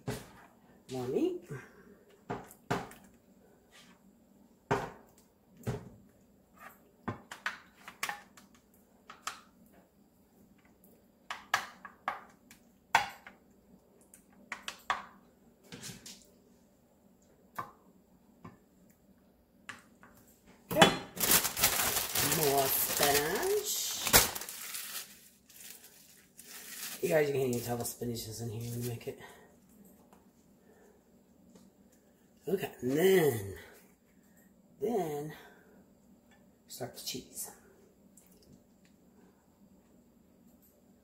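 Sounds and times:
plastic bag crinkling: 0:21.1 - 0:29.1.

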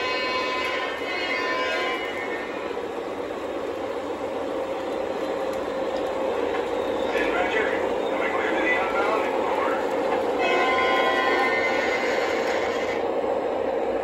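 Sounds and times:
model locomotive horn: 0:00.0 - 0:02.8, 0:10.4 - 0:13.0
model train running rumble: 0:00.0 - 0:14.0.

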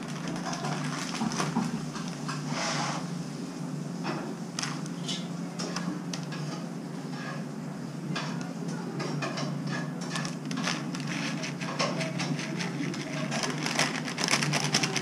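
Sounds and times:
dry snack crackling into bowl: 0:00.0 - 0:02.2, 0:10.0 - 0:15.0
plastic packet crinkling: 0:00.0 - 0:02.2, 0:04.6 - 0:04.9, 0:10.1 - 0:15.0
steady low hum: 0:00.0 - 0:15.0.

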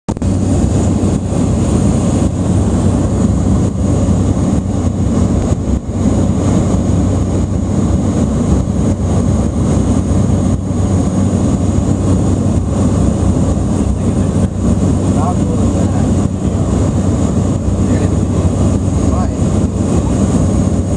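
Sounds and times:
turboprop engines droning in cabin: 0:00.1 - 0:20.9.

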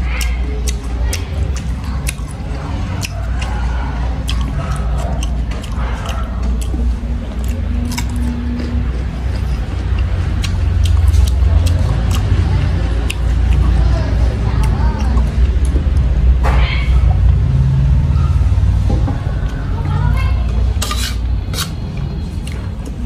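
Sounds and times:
crunching and chewing: 0:00.0 - 0:16.4, 0:20.5 - 0:23.0.

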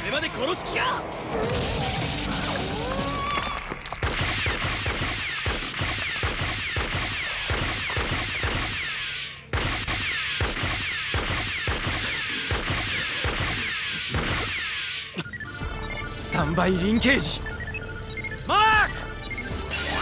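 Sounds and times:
blast and gunfire impacts: 0:04.0 - 0:15.0.

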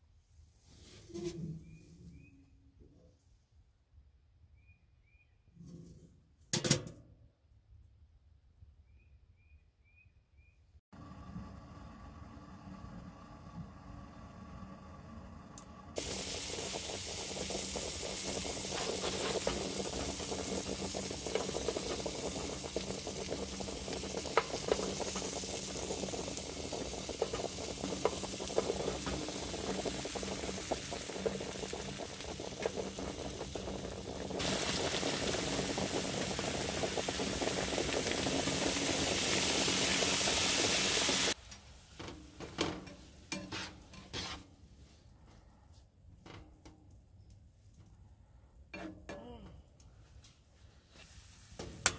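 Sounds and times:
food sizzling in frying pan: 0:16.0 - 0:41.4
spatula clicking and scraping pan: 0:42.8 - 0:44.5.

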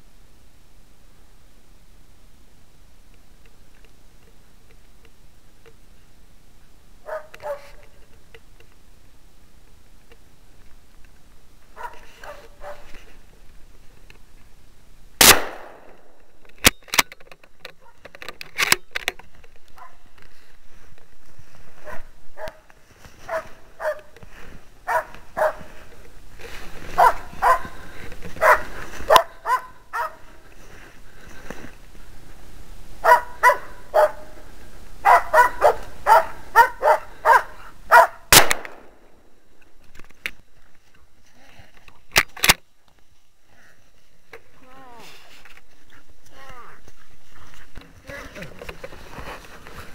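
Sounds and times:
dog barking: 0:07.0 - 0:07.8, 0:11.8 - 0:12.9, 0:19.8 - 0:20.0, 0:21.8 - 0:22.6, 0:23.3 - 0:24.1, 0:24.9 - 0:25.6, 0:27.0 - 0:27.8, 0:28.4 - 0:30.2, 0:33.0 - 0:34.4, 0:35.0 - 0:38.3
gunshot cracks: 0:15.2 - 0:16.2, 0:38.3 - 0:39.1.

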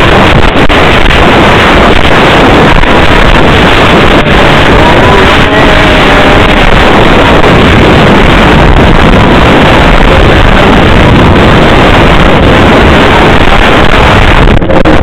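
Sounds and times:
snowmobile engine drone: 0:00.0 - 0:15.0
wind buffeting microphone: 0:00.0 - 0:15.0.

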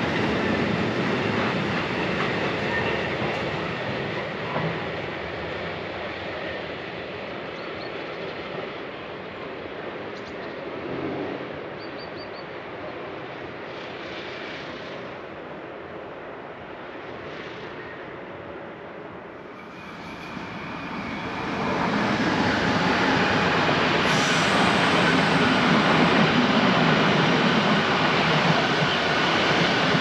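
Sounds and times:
train wheels rushing on rails: 0:00.0 - 0:12.0, 0:12.8 - 0:30.0.

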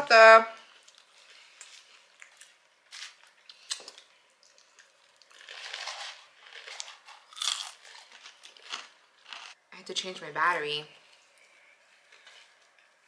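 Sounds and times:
person chewing food: 0:00.7 - 0:09.6.

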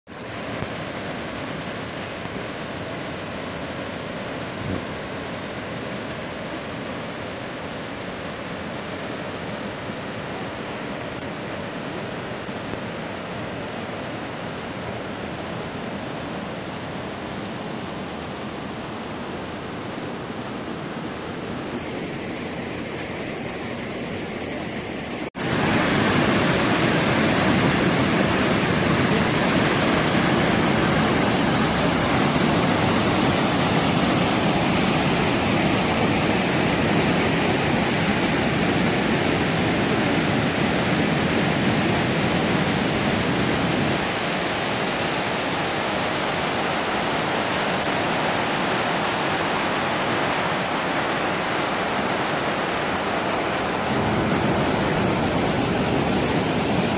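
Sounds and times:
waterfall rushing: 0:24.9 - 0:56.9.

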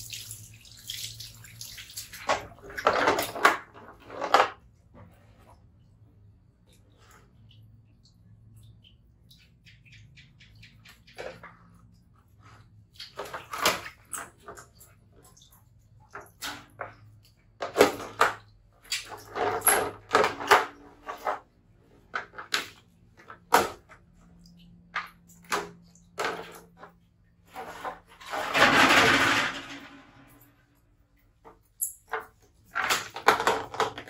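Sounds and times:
water splashing: 0:00.0 - 0:02.7
rubbing and knocking: 0:26.4 - 0:30.4.

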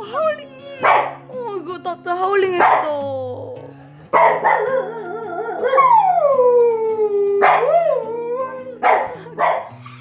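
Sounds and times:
dog howling: 0:04.3 - 0:09.8.

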